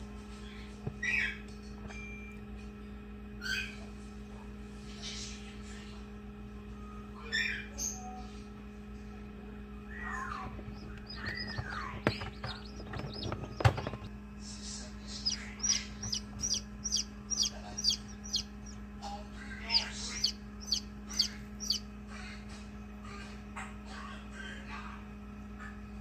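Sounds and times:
steady low hum: 0.0s - 26.0s
chick peeping: 10.2s - 18.8s, 19.6s - 21.9s.

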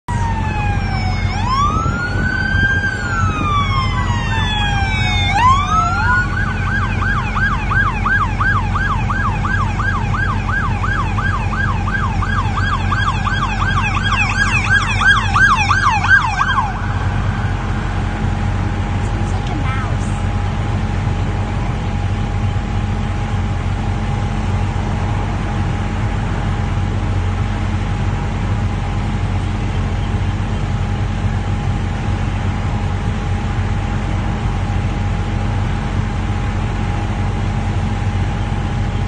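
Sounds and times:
police car siren: 0.1s - 28.1s.

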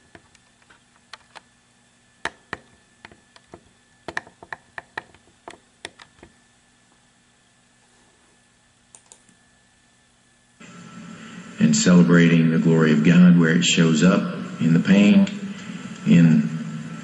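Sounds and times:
faint steady hum: 0.0s - 17.0s
computer keys clicking: 8.9s - 9.4s.

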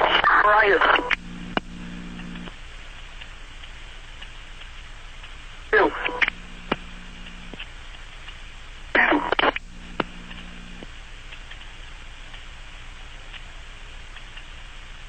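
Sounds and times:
garbled radio transmission: 0.0s - 2.5s, 5.7s - 7.6s, 9.0s - 10.9s
radio hiss: 0.0s - 4.2s, 4.8s - 11.9s
low steady hum: 0.0s - 15.0s.

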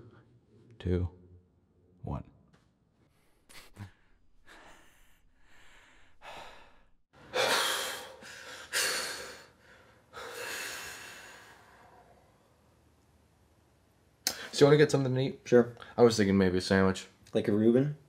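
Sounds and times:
heavy breathing: 3.1s - 12.4s
loud gasping breaths: 3.5s - 12.2s.

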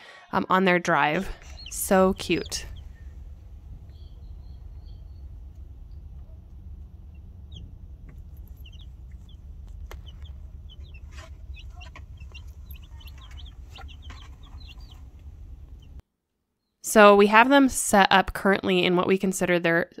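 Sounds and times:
baby chicks peeping: 1.0s - 16.0s
car rumbling on road: 1.2s - 16.0s.

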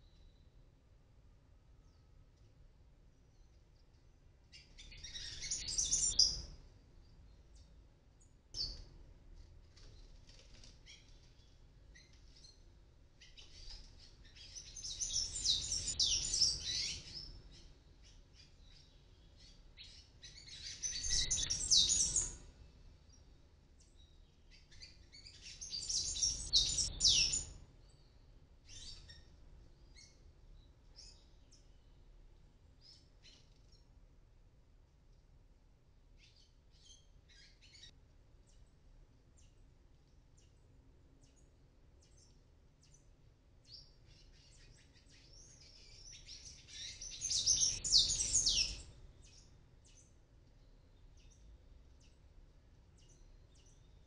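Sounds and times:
birds twittering: 4.6s - 6.5s, 10.9s - 22.4s, 24.6s - 29.2s, 43.8s - 52.2s.

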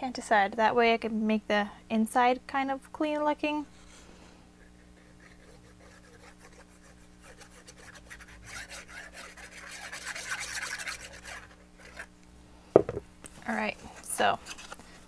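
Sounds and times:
glue bottle scratching on card: 4.7s - 12.1s.

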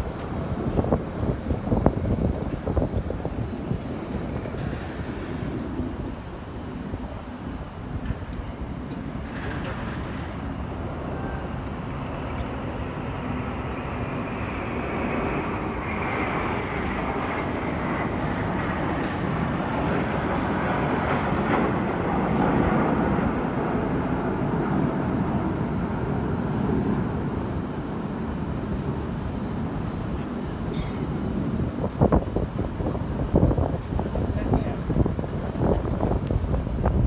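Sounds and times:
jets rumbling past: 0.0s - 29.6s
faint high whine: 0.0s - 37.0s.

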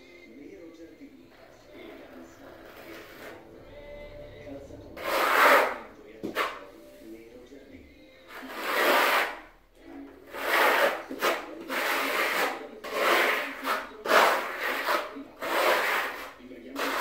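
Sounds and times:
trowel scraping concrete floor: 1.6s - 3.5s, 4.9s - 7.2s, 8.3s - 9.6s, 10.2s - 17.0s.

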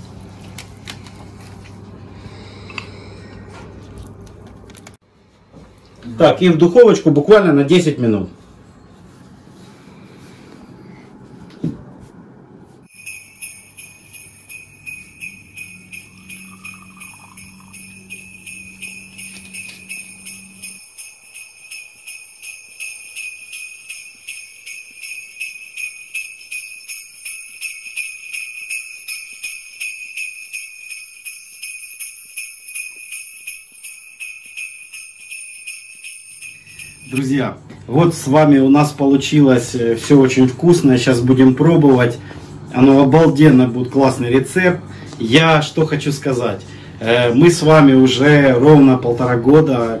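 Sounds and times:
sleigh bells jingling: 12.9s - 42.1s, 47.1s - 50.0s.

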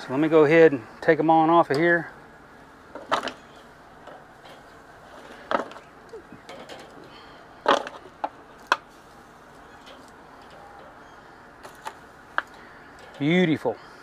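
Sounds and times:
metal tongs clacking on grill: 9.6s - 13.4s.

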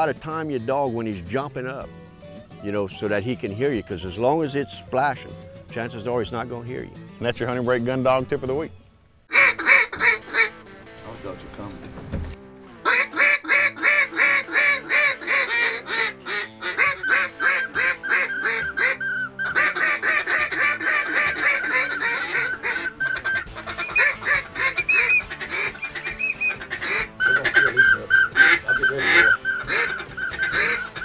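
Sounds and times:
background music: 0.0s - 31.0s
rapid duck quacks: 9.3s - 10.7s, 12.8s - 31.0s.

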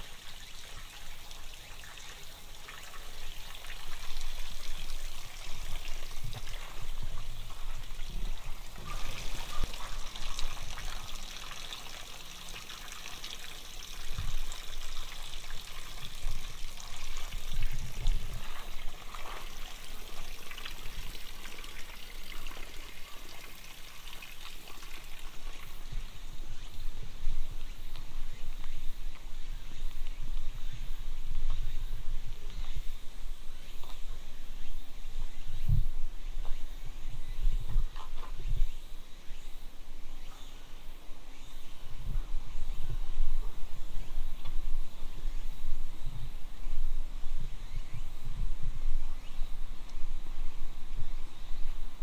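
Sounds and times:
water trickling and splashing: 0.0s - 29.2s.

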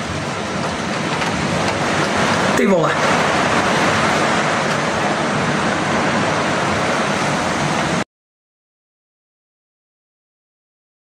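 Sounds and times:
driving rain: 0.0s - 8.0s
storm wind: 0.0s - 8.0s.

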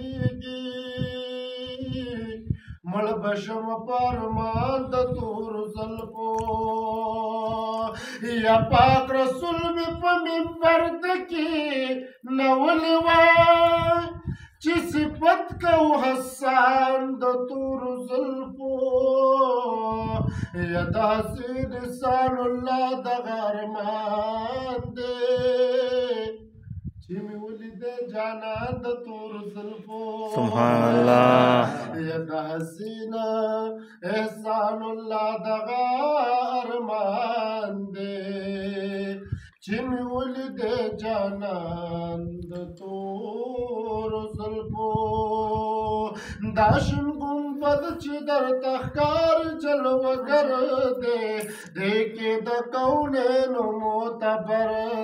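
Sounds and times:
man singing unaccompanied: 0.0s - 26.4s, 27.1s - 55.0s.

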